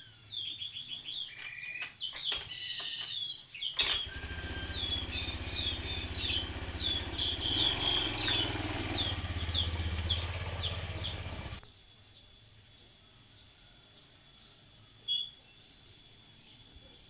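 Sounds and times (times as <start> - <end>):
bird chirping: 0.0 - 17.0
engine running: 3.8 - 11.6.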